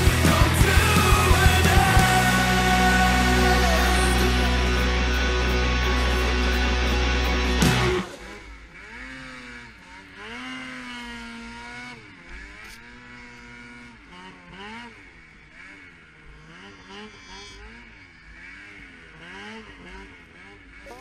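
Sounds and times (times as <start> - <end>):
snowmobile engine revving: 0.0 - 21.0.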